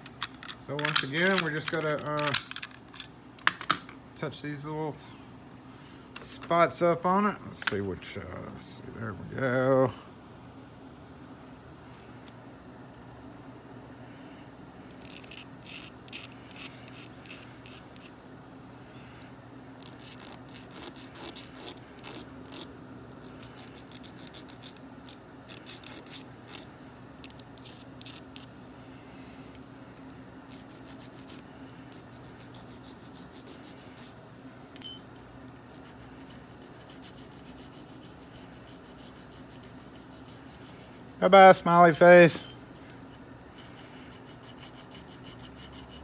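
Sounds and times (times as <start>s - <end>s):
hand file rasping on metal key: 19.8s - 22.7s, 35.7s - 41.2s, 43.6s - 46.0s
sharp metallic clink: 34.8s - 35.1s, 41.9s - 42.6s.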